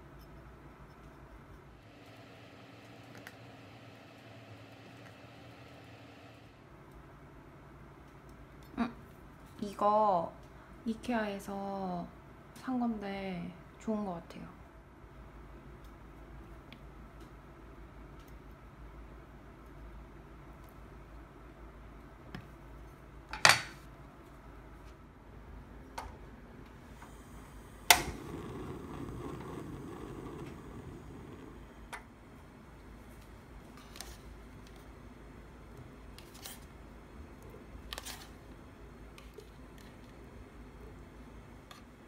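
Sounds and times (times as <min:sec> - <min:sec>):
gas burner hissing: 0:01.8 - 0:06.6, 0:26.7 - 0:36.2
kitchen handling clicks and knocks: 0:23.3 - 0:23.8
stove igniter click: 0:27.8 - 0:30.8.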